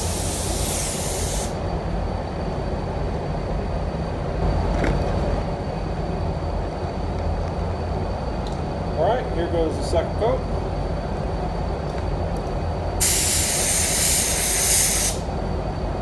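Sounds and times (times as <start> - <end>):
spray gun air hiss: 0.0 - 1.6, 13.0 - 15.3
low rumble of booth airflow: 0.0 - 16.0.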